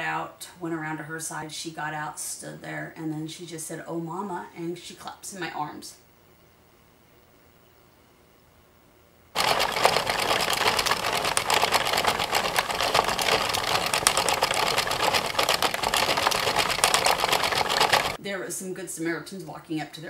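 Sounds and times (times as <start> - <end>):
knitting machine needles clattering: 9.4 - 18.2.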